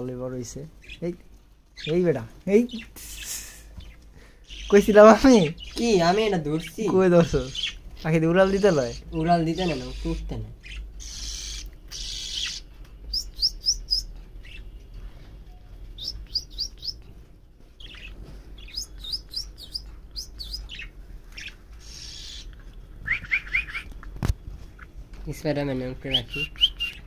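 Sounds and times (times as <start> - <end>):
budgerigar chirping: 4.5 - 14.7, 16.0 - 17.0, 17.8 - 23.9, 26.0 - 27.0
soft hissy rustles: 17.0 - 23.3.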